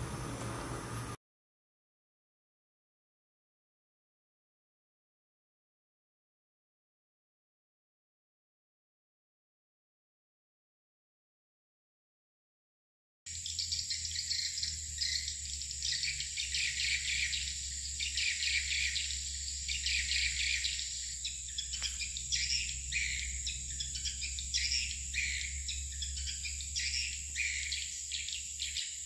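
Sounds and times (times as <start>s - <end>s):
birds twittering: 13.3s - 29.0s
steady high drone: 13.3s - 29.0s.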